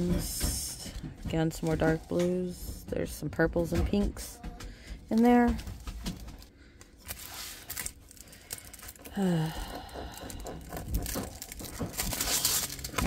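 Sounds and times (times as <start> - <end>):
plastic sleeve crinkling: 6.0 - 9.1, 10.2 - 13.0.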